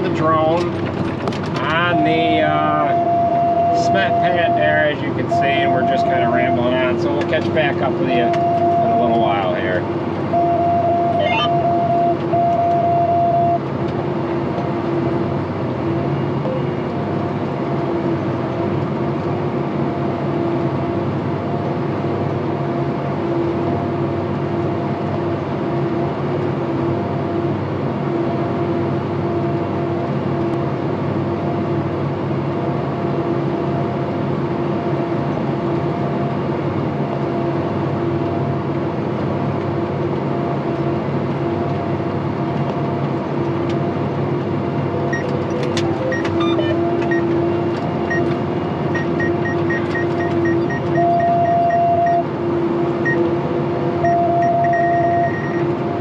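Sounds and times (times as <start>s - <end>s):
tractor engine running: 0.0s - 56.0s
short electronic beeps: 1.7s - 6.9s, 8.1s - 9.3s, 10.4s - 13.6s, 45.1s - 47.3s, 48.1s - 48.3s, 48.9s - 52.3s, 54.0s - 55.7s.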